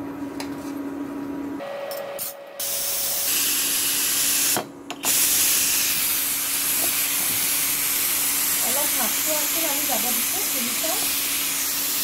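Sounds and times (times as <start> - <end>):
pressure cooker venting steam: 2.6 - 12.0.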